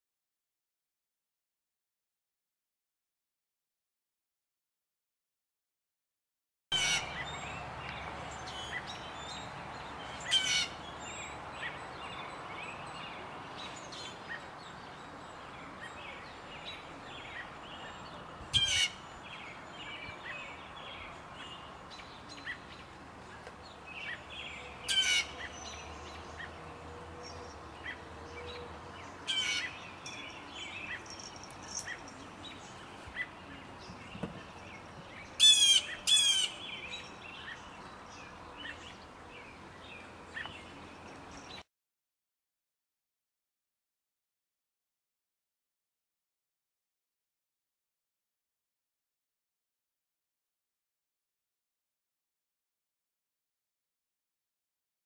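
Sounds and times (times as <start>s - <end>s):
blue jay calling: 6.7s - 7.6s, 8.3s - 13.0s, 15.8s - 19.2s, 24.8s - 26.5s, 29.2s - 32.2s, 35.2s - 37.7s.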